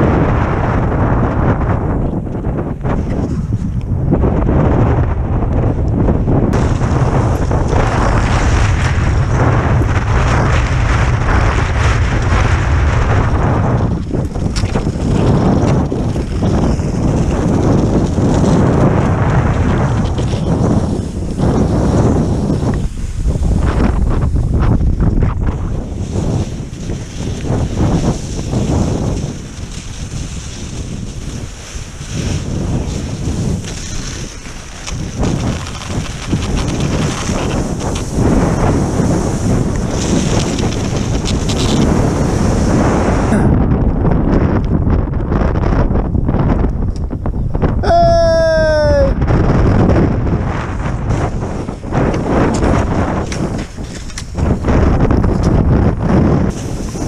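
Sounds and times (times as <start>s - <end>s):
wind buffeting microphone: 0.0s - 57.0s
skis sliding over snow: 6.5s - 43.3s, 50.5s - 57.0s.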